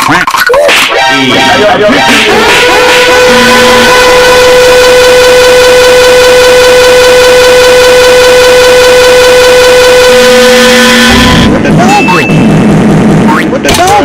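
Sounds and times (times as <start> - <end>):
sliding pitches: 0.6 - 14.0
harsh buzzing drone: 0.8 - 13.7
low tone: 9.3 - 13.8.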